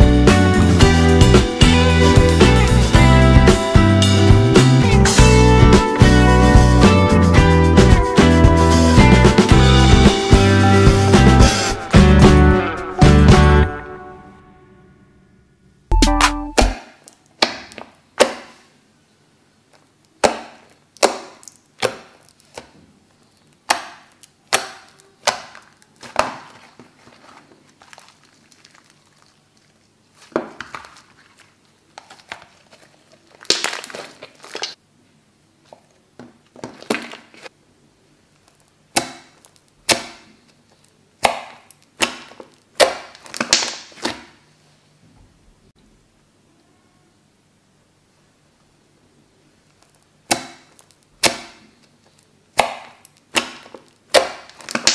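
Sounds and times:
slime crackling: 24.1 - 34.8, 52.1 - 54.9.

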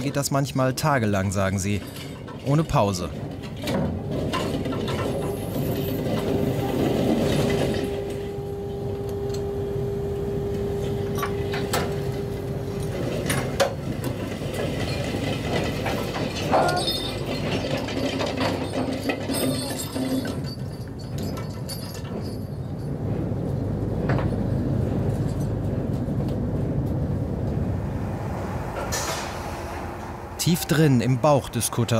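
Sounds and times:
metal clanks and knocks: 1.6 - 8.3, 11.1 - 23.0
deck machinery hum: 3.1 - 19.3, 20.3 - 31.9.

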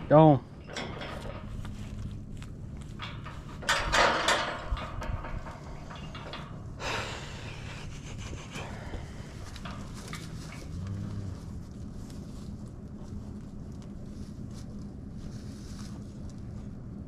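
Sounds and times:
low steady hum: 0.0 - 17.0
bull snorting: 6.8 - 12.0.

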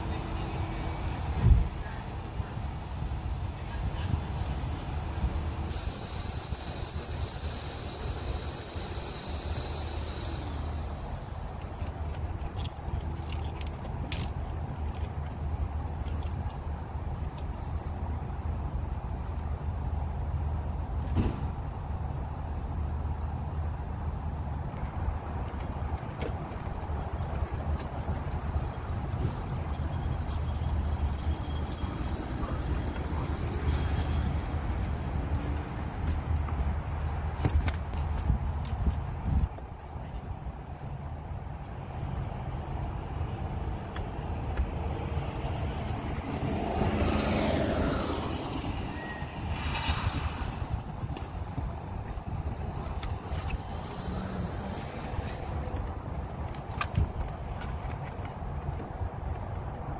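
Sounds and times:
steady low rumble: 48.4 - 53.8.

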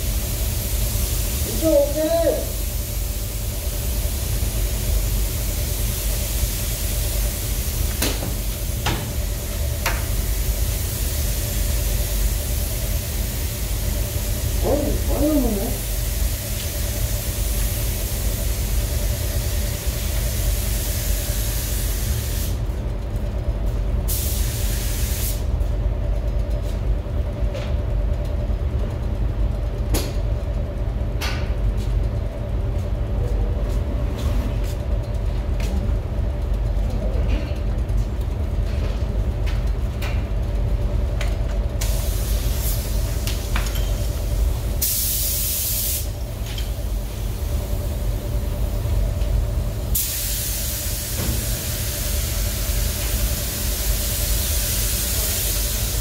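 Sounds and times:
ventilation rumble and hum: 0.0 - 56.0
paint spray gun hissing: 24.1 - 25.4, 41.8 - 43.6, 44.8 - 46.2, 49.9 - 56.0.

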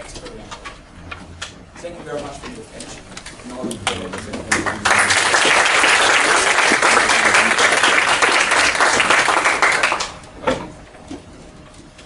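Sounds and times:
audience applauding: 3.8 - 10.3.

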